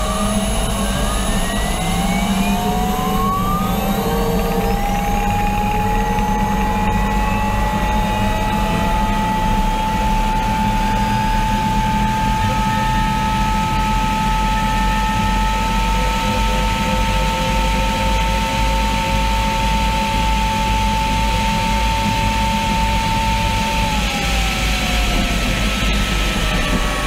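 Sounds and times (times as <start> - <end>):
gas turbine whining: 0.0 - 27.0
wind rush: 22.2 - 27.0.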